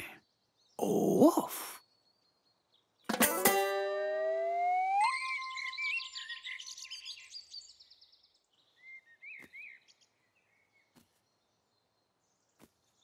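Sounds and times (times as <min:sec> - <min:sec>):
cartoon bird twittering: 0:03.7 - 0:06.4
short bird chirps: 0:04.3 - 0:08.1, 0:08.7 - 0:11.9.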